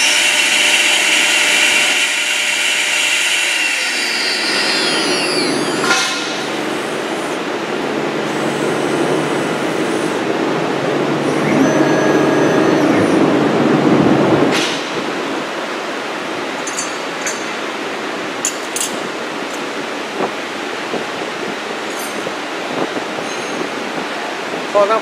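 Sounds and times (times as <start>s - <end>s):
router cutting noise: 0.0s - 7.4s, 8.3s - 10.2s
router spindle whining: 0.0s - 7.4s, 8.2s - 10.2s.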